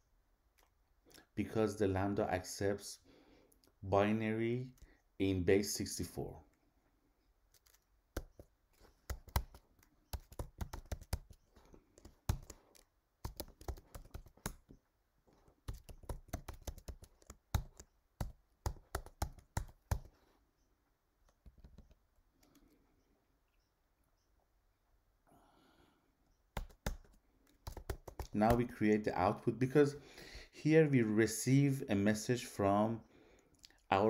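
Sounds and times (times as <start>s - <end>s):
typing on computer keyboard: 7.5s - 14.8s, 15.6s - 20.2s, 26.5s - 28.7s.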